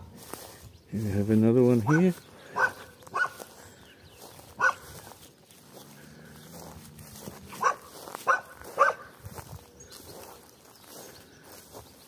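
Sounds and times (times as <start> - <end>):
dog barking: 1.8 - 3.4, 4.6 - 4.9, 7.5 - 9.2.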